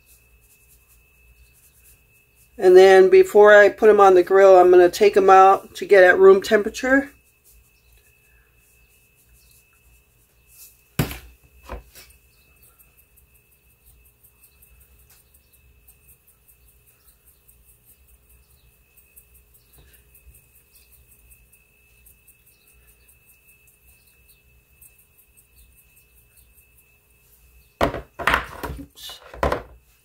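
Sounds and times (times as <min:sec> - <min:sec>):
knocks and handling sounds: 0:11.0 - 0:12.1, 0:27.8 - 0:29.9.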